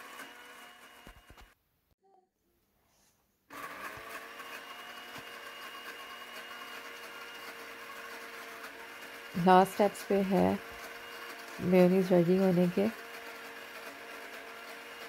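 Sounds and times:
blender motor running: 0.0 - 1.5, 3.5 - 15.0.

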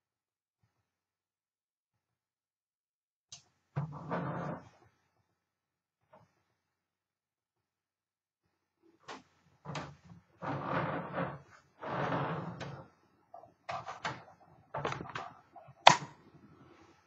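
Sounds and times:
scraping rubs: 9.1 - 17.0.

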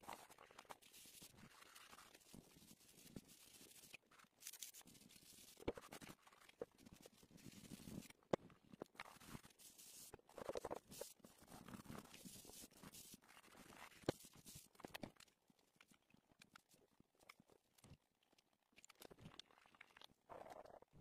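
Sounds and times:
fingers rubbing pastel on paper: 0.0 - 8.2, 9.0 - 14.8.

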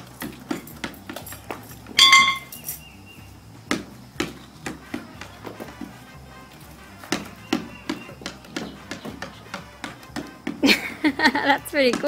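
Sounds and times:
rubber ball bouncing on concrete: 0.0 - 12.0
short high-pitched squeak: 2.0 - 2.8.

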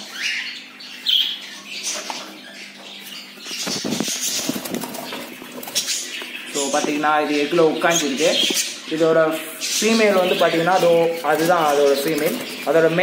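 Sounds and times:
budgies chirping and squawking: 0.0 - 13.0
wing flapping rustle: 3.6 - 6.2, 10.8 - 12.8.

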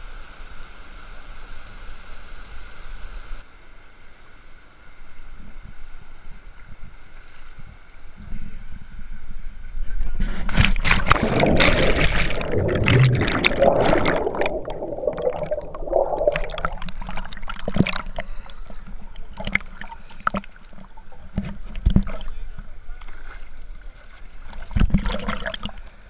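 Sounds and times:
muffled underwater rushing and bubbling: 10.1 - 23.1, 24.3 - 25.9
splash into river: 10.5 - 18.1
water sloshing and dripping: 10.5 - 25.9.

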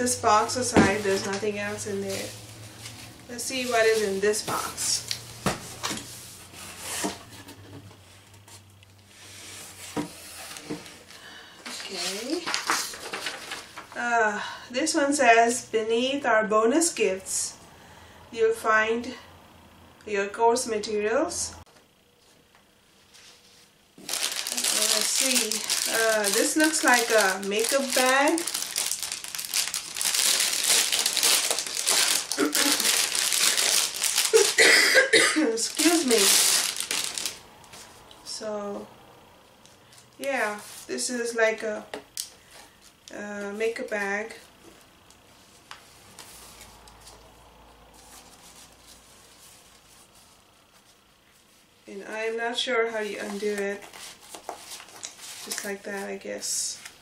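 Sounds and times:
plastic wrapping crinkling: 11.7 - 14.0, 24.0 - 34.8, 35.5 - 37.8, 53.2 - 56.0.

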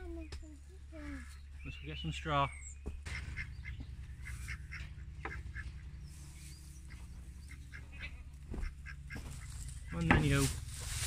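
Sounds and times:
steady low hum: 0.0 - 11.0
poultry quacking calls: 3.1 - 10.5.

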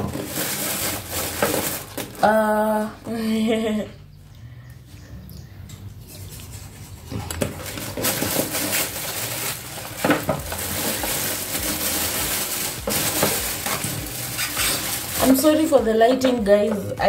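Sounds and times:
plastic bag crinkling and rustling: 0.0 - 2.4, 7.2 - 16.8.

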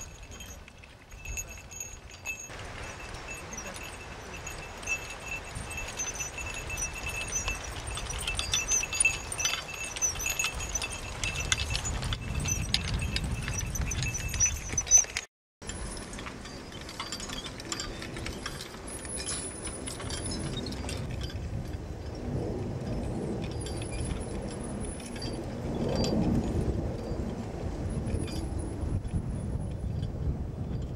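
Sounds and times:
clinking and rattling: 0.0 - 27.2
harness chains clinking: 0.0 - 30.9.

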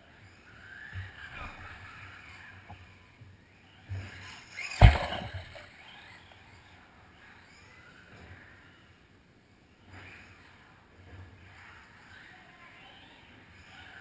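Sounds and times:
rc car motors whining: 0.2 - 8.9
loud thump: 4.8 - 5.6.

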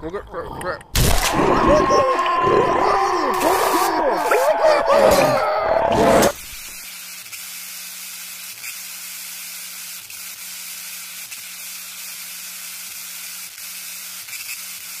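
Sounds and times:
static hiss: 6.2 - 15.0.

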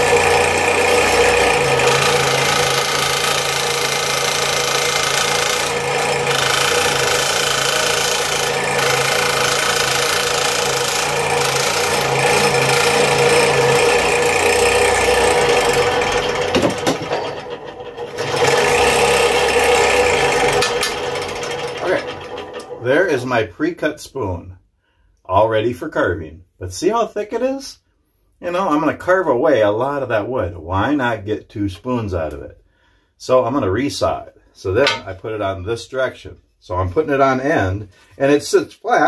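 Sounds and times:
scroll saw cutting wood: 0.0 - 23.2.

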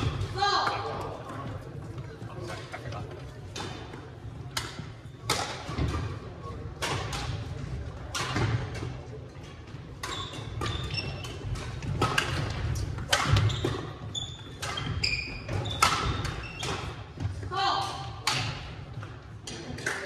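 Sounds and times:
rackets striking shuttlecock: 8.0 - 9.0, 9.9 - 17.0, 17.9 - 19.6
sneakers squeaking on wooden floor: 9.9 - 11.6, 13.2 - 17.3.

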